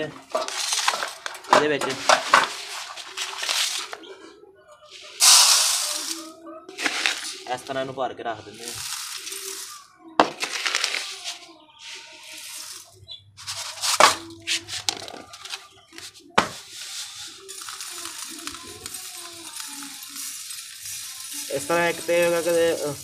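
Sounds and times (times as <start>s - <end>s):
seed pouring into metal feeder: 5.2s - 7.8s, 8.5s - 11.3s, 12.2s - 14.1s, 16.6s - 23.0s.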